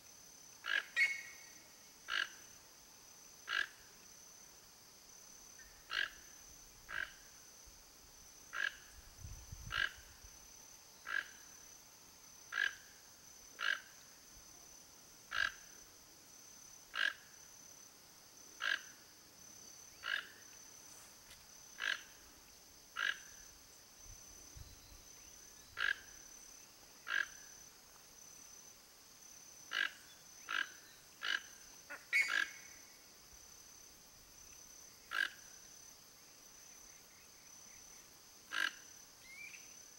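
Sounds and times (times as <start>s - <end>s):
toucan croaking calls: 0.6s - 1.5s, 2.1s - 2.5s, 3.5s - 3.8s, 5.8s - 7.2s, 8.5s - 9.0s, 9.6s - 10.1s, 11.0s - 11.4s, 12.5s - 12.9s, 13.6s - 13.9s, 15.3s - 15.7s, 16.9s - 17.3s, 18.6s - 19.0s, 19.9s - 20.4s, 21.8s - 22.2s, 23.0s - 23.4s, 25.7s - 26.2s, 27.0s - 27.5s, 29.7s - 32.8s, 35.1s - 35.4s, 38.5s - 39.6s.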